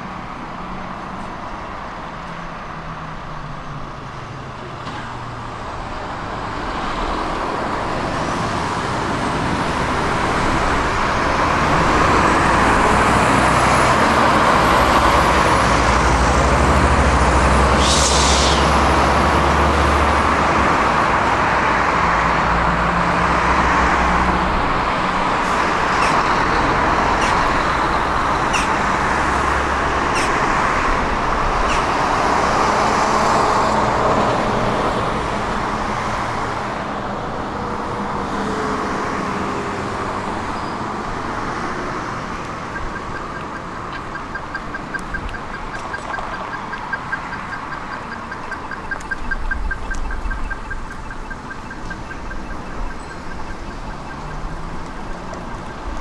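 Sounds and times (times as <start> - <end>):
wheels rumbling on rails: 0.0 - 56.0
brief hiss: 17.8 - 18.8.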